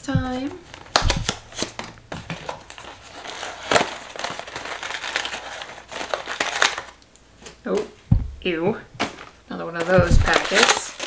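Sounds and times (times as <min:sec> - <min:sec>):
sharp cardboard crack: 0:00.7 - 0:02.6.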